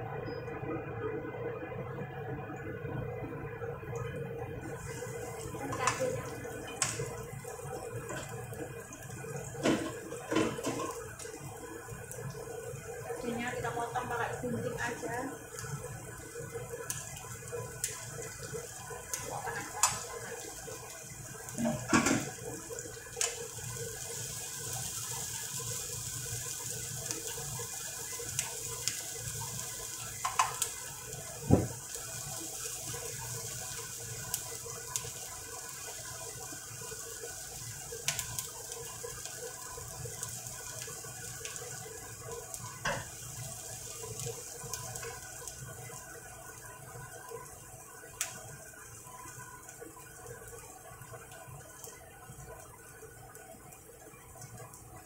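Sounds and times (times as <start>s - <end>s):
shallots sizzling in oil: 3.8s - 55.0s.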